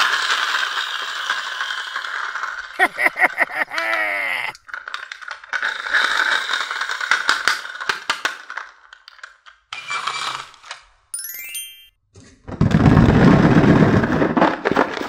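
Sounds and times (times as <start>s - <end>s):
toy car rattling and clicking: 0.0s - 10.8s
rising chime sound effect: 11.2s - 11.9s.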